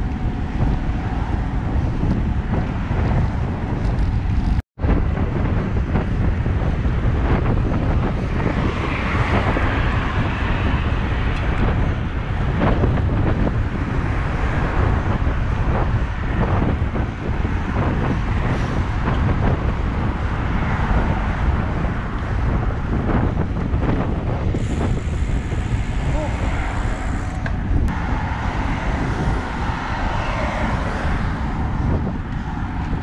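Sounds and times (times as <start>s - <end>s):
bicycle road rumble: 0.0s - 33.0s
wind buffeting microphone: 0.0s - 33.0s
car passing close: 7.6s - 33.0s.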